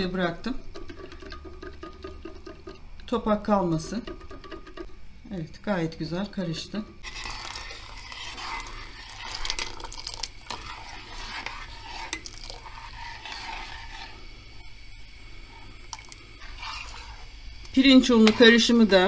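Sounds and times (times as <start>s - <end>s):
spoon stirring thick pudding: 0.0s - 4.9s, 7.0s - 14.8s, 15.4s - 19.0s
liquid being poured: 7.0s - 18.4s.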